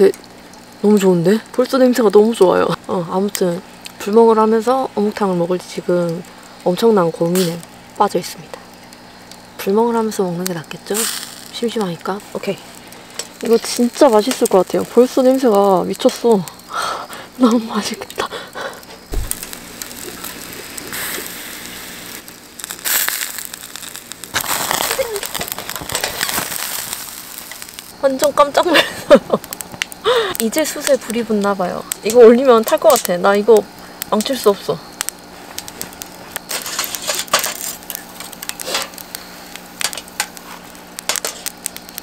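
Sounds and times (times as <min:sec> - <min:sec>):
charcoal fire crackling and hissing: 0:00.0 - 0:42.0
low thump: 0:19.1 - 0:19.6.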